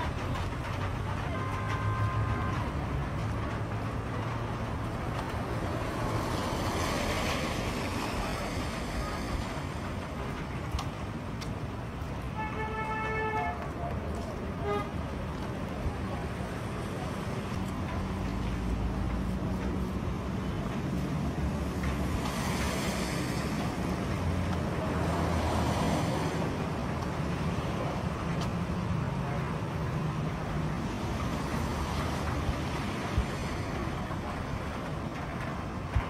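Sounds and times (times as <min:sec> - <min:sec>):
tyre hiss on wet road: 0:04.8 - 0:11.4, 0:21.1 - 0:27.8, 0:29.6 - 0:34.4.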